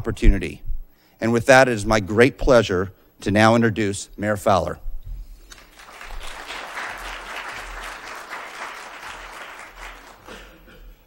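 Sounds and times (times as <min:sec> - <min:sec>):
audience applauding: 0:05.5 - 0:10.7.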